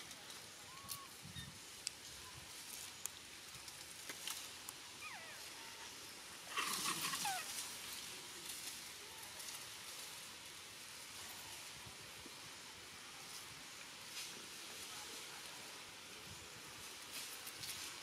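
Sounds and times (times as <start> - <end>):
thin whistle-like animal calls: 0.7 - 1.5.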